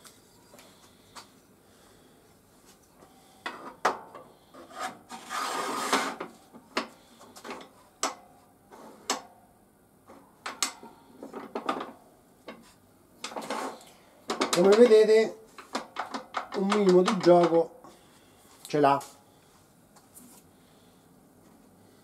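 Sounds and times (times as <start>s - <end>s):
metal bar scraping in groove: 4.6s - 6.2s
clicks and knocks on metal table: 14.3s - 15.0s.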